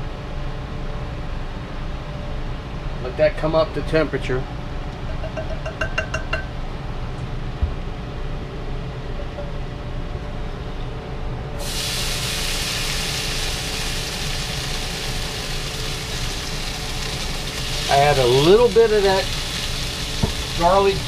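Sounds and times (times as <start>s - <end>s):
low steady hum: 0.0s - 21.0s
meat sizzling in hot oil: 11.6s - 21.0s.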